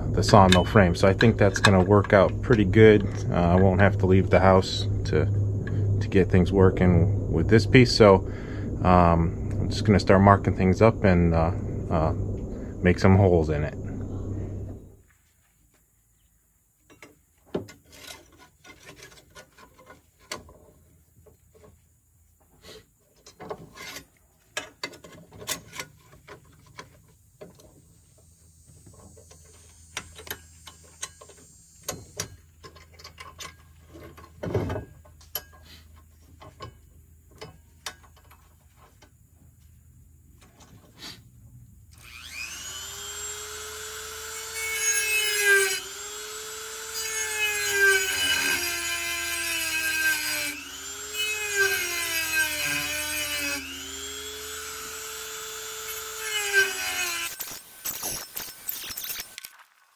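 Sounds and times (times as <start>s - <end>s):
handheld drill boring metal: 42.0s - 59.5s.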